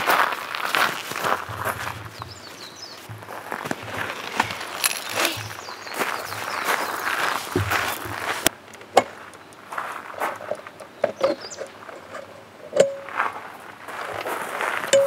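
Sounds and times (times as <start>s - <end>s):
footsteps crunching on gravel: 0.0s - 10.8s, 13.0s - 15.0s
gear squeaking: 1.5s - 8.5s.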